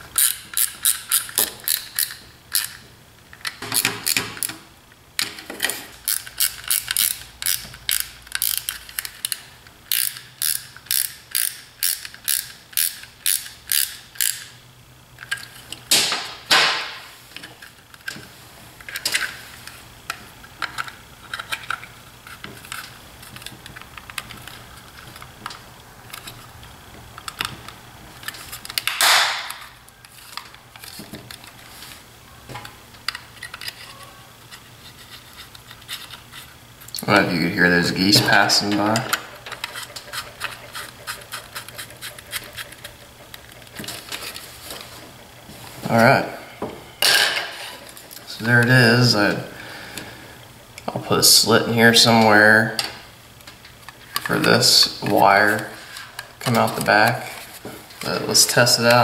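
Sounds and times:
ratcheting screwdriver clicking: 0:00.2 - 0:04.6, 0:06.1 - 0:14.5
handling noises: 0:15.2 - 0:50.2.

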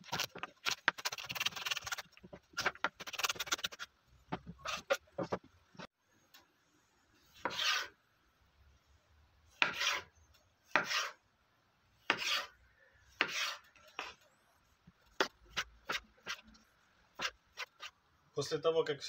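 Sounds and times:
knife cutting tomato on board: 0:07.3 - 0:08.0, 0:09.6 - 0:10.1, 0:10.7 - 0:11.2, 0:12.0 - 0:12.6, 0:13.2 - 0:14.2, 0:17.2 - 0:17.9.

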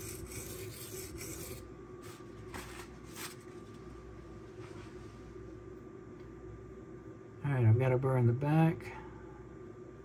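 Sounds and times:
knife grinding on sharpening stone: 0:00.0 - 0:01.6.

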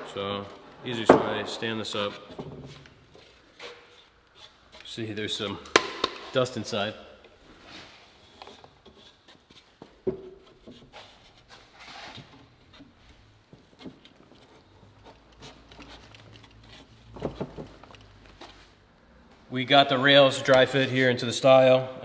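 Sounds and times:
sharp wooden knock: 0:05.7 - 0:06.3.

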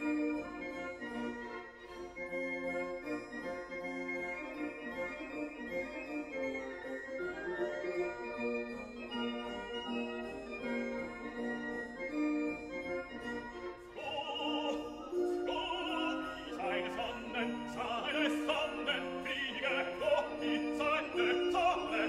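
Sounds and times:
operatic singing voice: 0:13.9 - 0:22.0.

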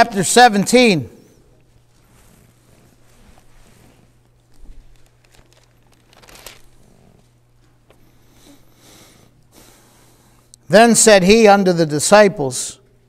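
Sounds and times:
faint steady hum: 0:00.0 - 0:13.0
thin pages turning: 0:03.2 - 0:06.9.

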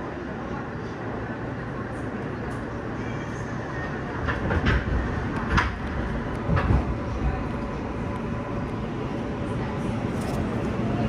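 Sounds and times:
train wheels rumbling on rail: 0:00.0 - 0:11.0
wheels clacking over rail joints: 0:04.1 - 0:08.7.

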